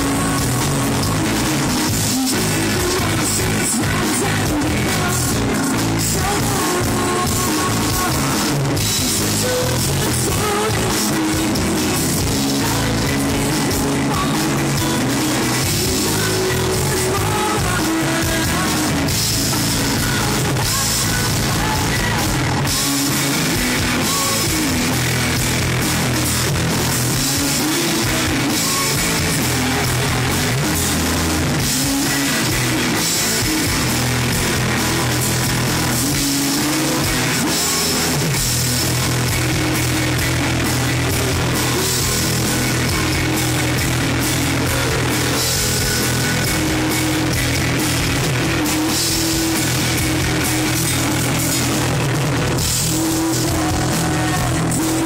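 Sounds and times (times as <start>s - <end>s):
woman singing: 0.0s - 25.0s, 27.1s - 31.0s, 52.8s - 55.0s
rock band playing: 0.0s - 55.0s.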